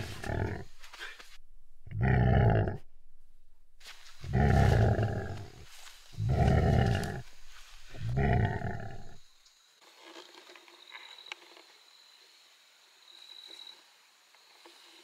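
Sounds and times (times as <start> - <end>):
tiger roaring: 0.0 - 0.7, 1.8 - 2.8, 4.2 - 5.6, 6.2 - 9.2.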